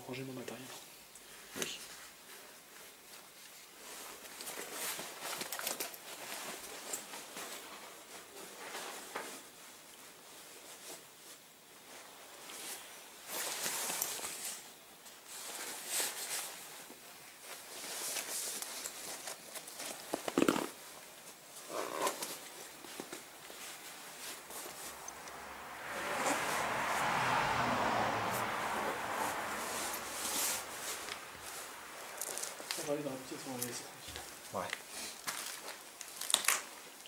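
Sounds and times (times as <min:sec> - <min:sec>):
gear rustling: 0:29.2 - 0:36.5.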